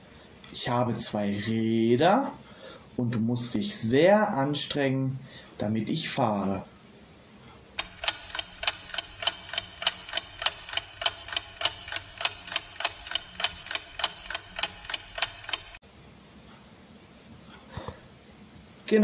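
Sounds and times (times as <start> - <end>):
clock ticking: 7.8 - 15.8.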